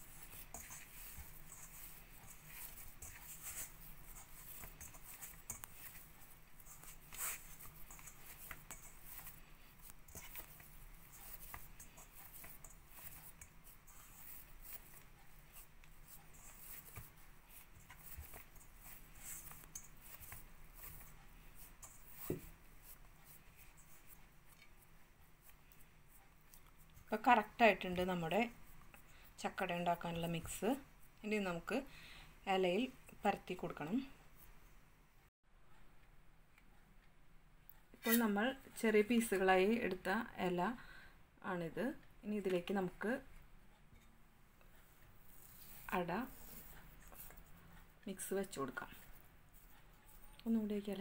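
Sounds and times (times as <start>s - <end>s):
hands kneading dough in bowl: 0.0s - 31.9s, 45.0s - 51.0s.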